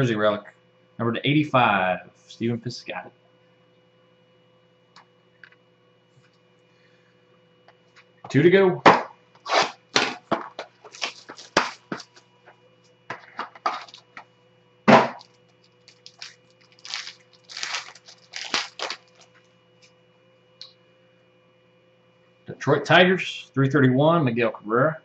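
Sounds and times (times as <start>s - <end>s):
plastic wrapper crinkling and ripping: 10.8s - 12.1s, 13.8s - 14.0s, 15.2s - 19.4s.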